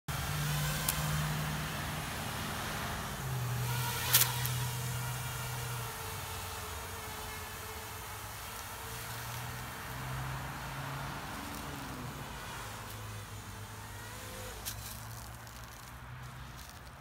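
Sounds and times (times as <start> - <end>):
quadcopter motors humming: 0.1 - 17.0.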